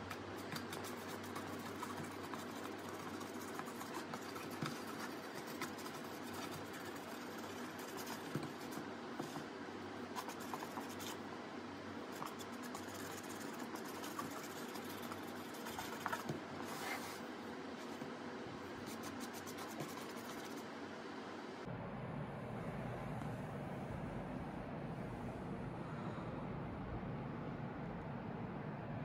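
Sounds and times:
paintbrush scratching and tapping: 0.0s - 9.5s, 10.2s - 11.2s, 12.1s - 17.2s, 18.8s - 20.6s.

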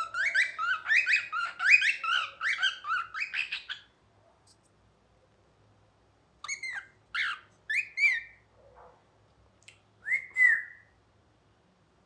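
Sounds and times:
cockatiel whistling: 0.0s - 3.8s, 6.4s - 8.3s, 10.0s - 10.8s.

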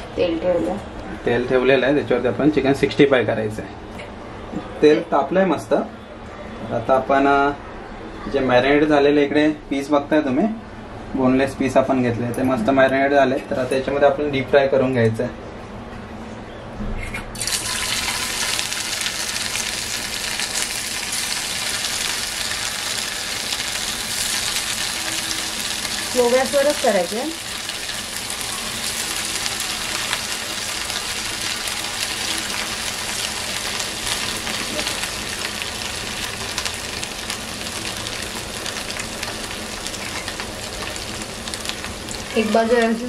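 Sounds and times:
chicken sizzling in hot oil: 17.4s - 43.0s.

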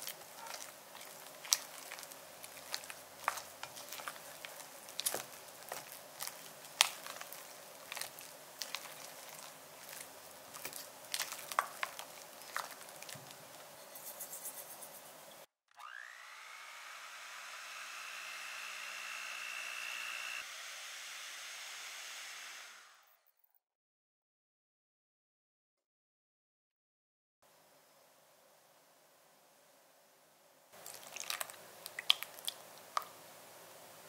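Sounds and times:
electric hand mixer whining: 15.7s - 23.2s.

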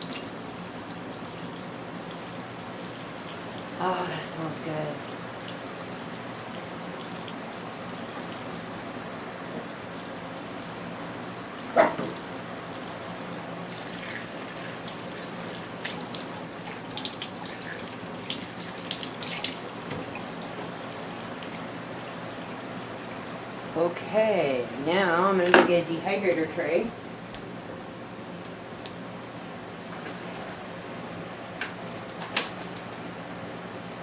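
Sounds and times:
faucet running into a sink: 0.0s - 23.8s.

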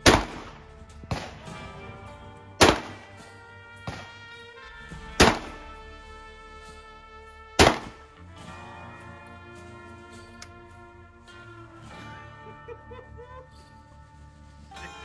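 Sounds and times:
shotgun shots with echo: 0.0s - 1.6s, 2.6s - 3.3s, 5.2s - 5.7s, 7.6s - 8.0s
background music: 0.0s - 15.0s.

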